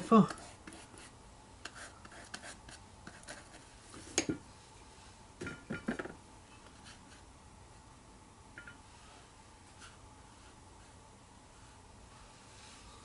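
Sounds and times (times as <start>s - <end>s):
brush scratching on paper: 0.3s - 3.8s, 9.1s - 13.0s.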